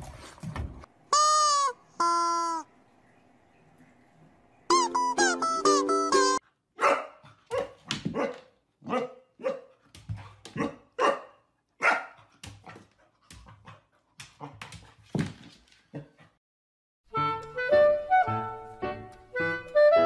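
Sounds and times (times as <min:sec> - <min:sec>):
puppy barking: 0:06.8 - 0:09.7, 0:10.6 - 0:12.2.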